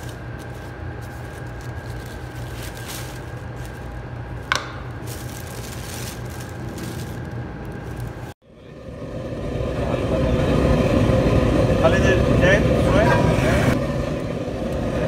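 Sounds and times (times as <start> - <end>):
plastic sheet rustling: 0.0 - 8.4
steady machine hum: 0.0 - 15.0.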